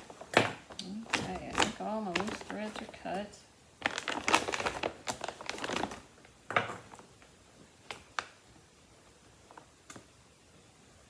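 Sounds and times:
plastic sack crinkling and rustling: 0.0 - 8.5.

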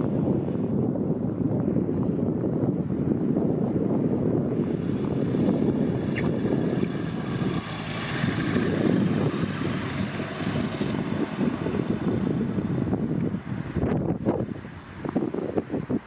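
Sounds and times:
propeller aircraft engine: 0.0 - 16.0
wind buffeting microphone: 0.0 - 16.0.

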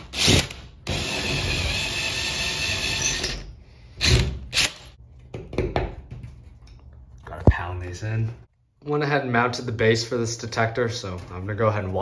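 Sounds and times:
power drill boring: 0.2 - 3.4.

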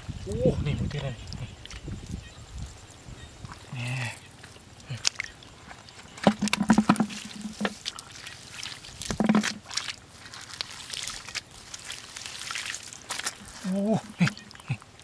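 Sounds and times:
mud and water squelching: 0.2 - 15.0
sharp knocks and clicks: 6.2 - 7.8, 9.1 - 9.6.

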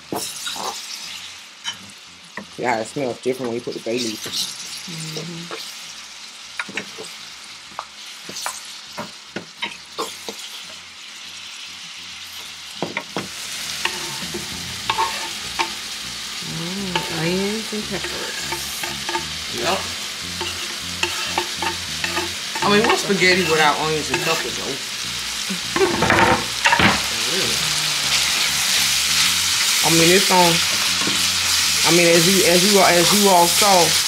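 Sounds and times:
meat sizzling in a skillet: 0.0 - 34.0
wooden spoon scraping a pan: 13.8 - 15.5, 20.4 - 24.4.

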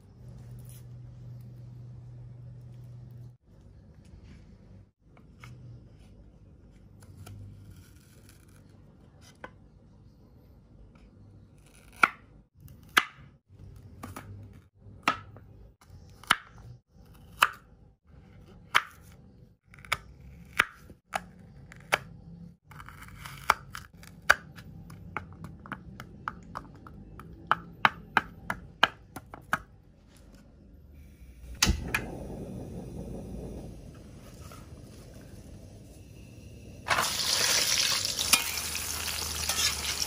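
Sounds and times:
gas burner hissing: 31.0 - 40.0.

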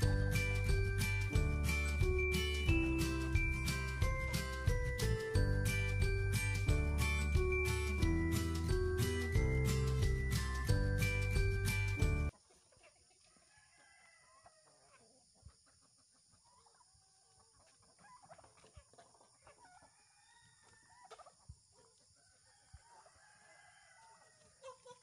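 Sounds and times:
chickens clucking: 14.0 - 25.0.

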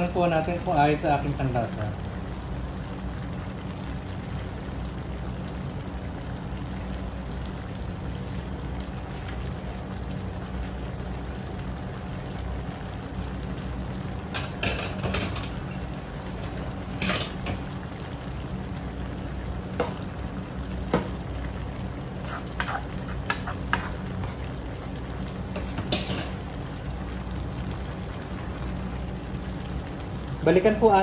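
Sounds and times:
steady low hum: 0.0 - 30.7
metal spatula scraping a wok: 22.2 - 24.4.

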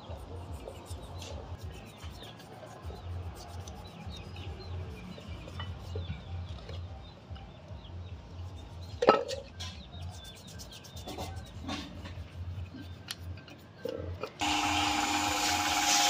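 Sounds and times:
birds chirping: 0.0 - 14.4
toothbrush scrubbing metal: 0.2 - 6.0, 10.0 - 13.9.

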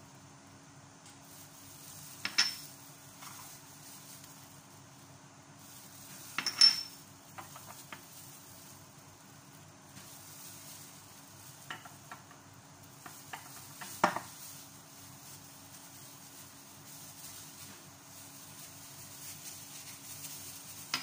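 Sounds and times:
dishes clinking on stone: 2.2 - 2.7, 6.4 - 7.5.

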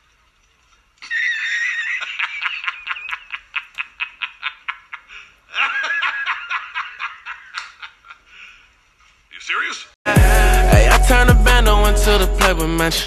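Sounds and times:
high-pitched cackling laughter: 1.0 - 8.3.

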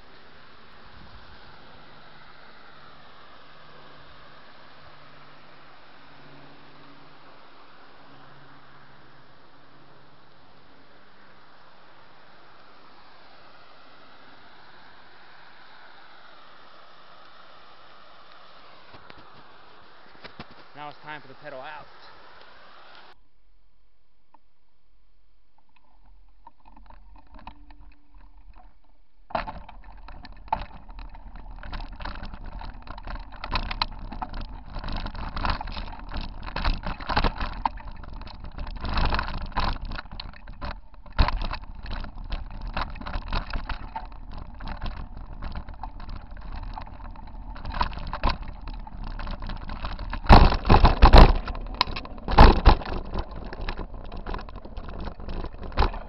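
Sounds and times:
bike rattling over rocky trail: 25.6 - 56.0.

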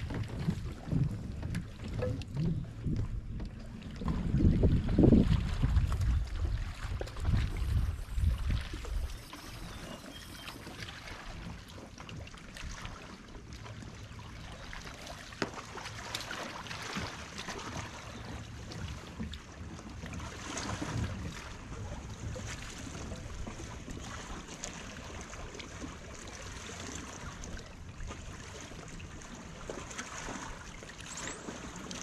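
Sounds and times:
wind buffeting microphone: 0.0 - 10.1
wind and water hiss: 0.0 - 32.0.

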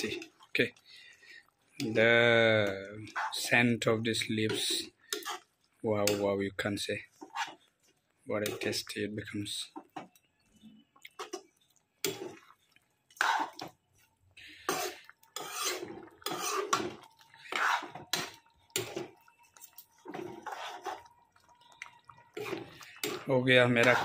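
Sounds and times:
metal spatula scraping a pan: 3.0 - 3.6, 4.4 - 6.3, 7.0 - 7.7, 13.1 - 13.8, 14.4 - 21.1, 22.3 - 24.0.

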